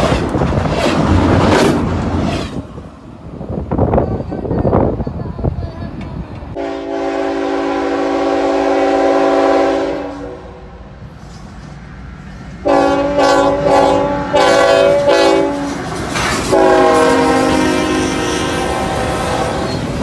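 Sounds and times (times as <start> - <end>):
locomotive air horn blasts: 6.6 - 10.6, 12.6 - 15.8, 16.5 - 19.8.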